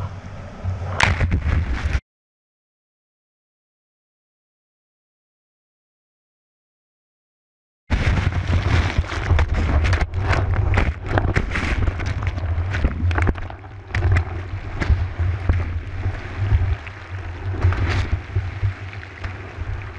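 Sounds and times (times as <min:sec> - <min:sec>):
churning whitewater rumble: 0:07.9 - 0:19.9
crackling splashes and bubbles: 0:07.9 - 0:19.9.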